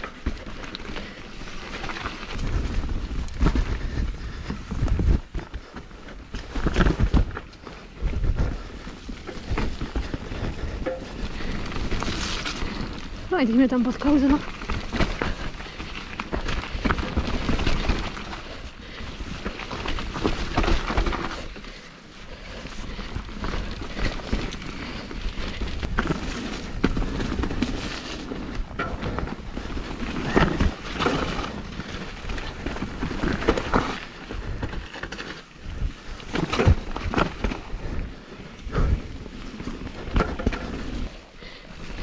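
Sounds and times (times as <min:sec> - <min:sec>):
wind rumbling on microphone: 0:00.0 - 0:21.6
bike rattling over bumps: 0:00.0 - 0:42.0
bike tyres running through mud: 0:00.0 - 0:42.0.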